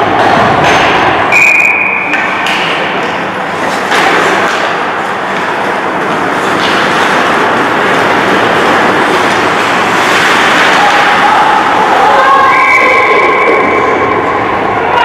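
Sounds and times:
high whistle note: 1.3 - 2.1
hockey sticks knocking on ice: 2.1 - 11.1
rink rushing noise: 2.4 - 15.0.

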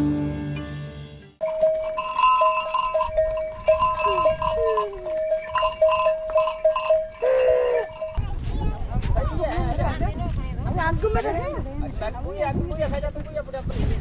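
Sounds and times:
cattle neck bells ringing: 1.4 - 8.2.

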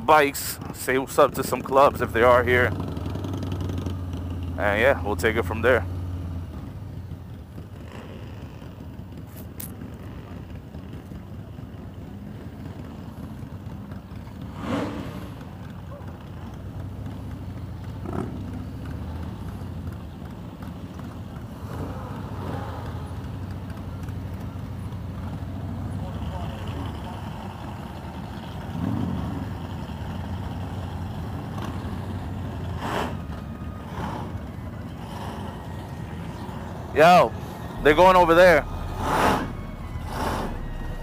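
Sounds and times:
motorcycle engine rumbling: 0.0 - 41.0
short loud sound: 37.8 - 41.0.

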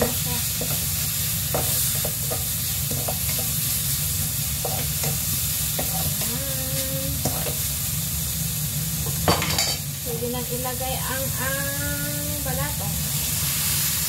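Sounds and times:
food sizzling in a wok: 0.0 - 14.0
wooden spatula scraping wok: 4.6 - 6.3, 7.2 - 7.6.

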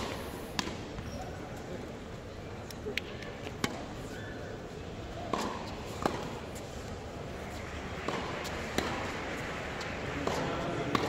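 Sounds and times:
tennis ball struck with racquets: 0.0 - 1.2, 2.9 - 3.9, 5.2 - 6.9, 7.5 - 11.0
murmur of voices: 1.4 - 11.0.

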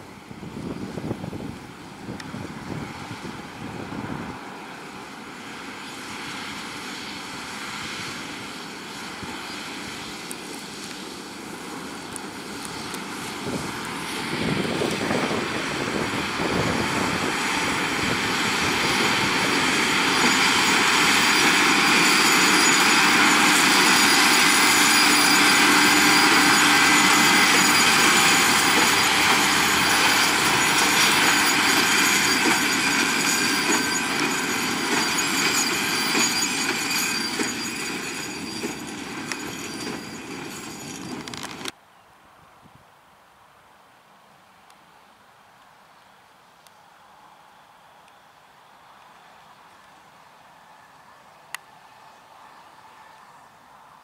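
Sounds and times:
baler machinery whine: 0.0 - 41.8
tractor diesel engine: 3.2 - 41.8.

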